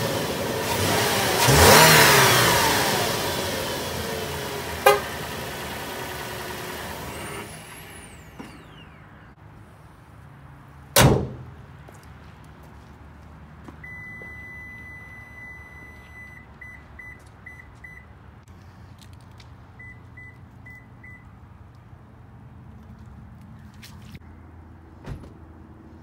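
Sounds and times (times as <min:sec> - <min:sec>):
car engine idling: 0:00.0 - 0:09.3
car hood slamming shut: 0:11.0 - 0:11.5
car warning chime beeping: 0:13.8 - 0:18.1, 0:19.8 - 0:21.3.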